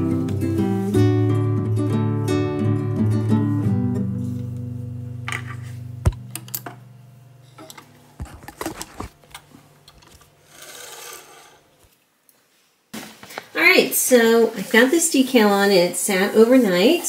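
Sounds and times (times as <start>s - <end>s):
guitar music: 0.0s - 8.5s
sewing machine handling sounds: 7.6s - 10.3s
soft fabric rustle: 12.4s - 17.0s.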